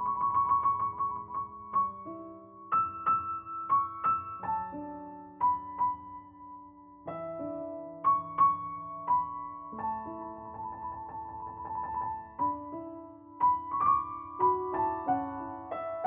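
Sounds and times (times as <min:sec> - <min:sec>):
soft piano music: 0:00.0 - 0:16.0.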